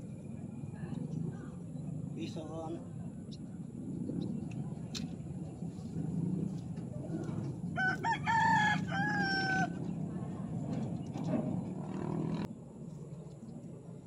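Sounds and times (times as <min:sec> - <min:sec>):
steady low hum: 0:00.0 - 0:14.0
rooster crowing: 0:07.6 - 0:09.9.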